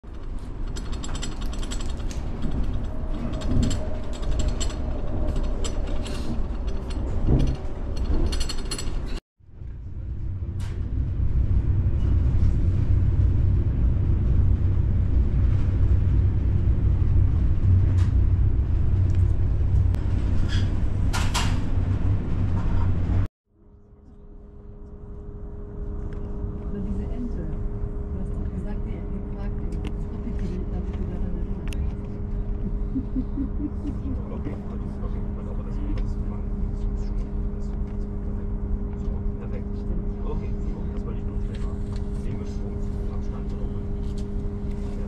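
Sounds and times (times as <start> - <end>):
rattling and clicking: 0.0 - 9.2
train interior rumble: 0.0 - 23.3, 24.7 - 45.0.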